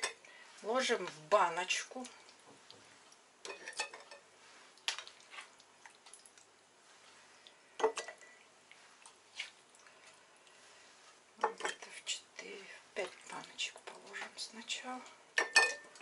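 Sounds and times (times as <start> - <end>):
ladle clinking on pot and jars: 3.4 - 4.3, 15.4 - 16.0.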